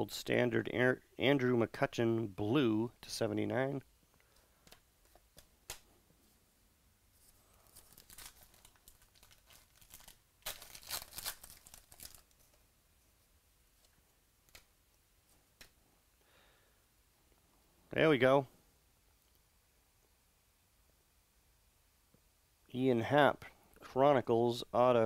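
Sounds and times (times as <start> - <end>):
wrapper crinkling and tearing: 7.5 - 12.6.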